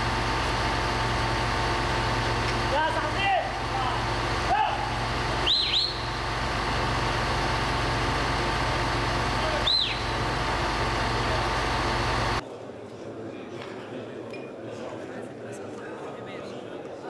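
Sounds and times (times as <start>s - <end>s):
heavy vehicle engine idling: 0.0s - 12.4s.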